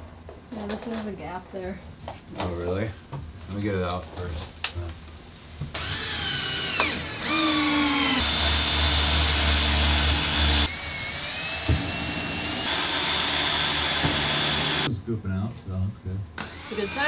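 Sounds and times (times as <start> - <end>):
electric drill boring into wood: 5.7 - 14.9, 16.4 - 17.0.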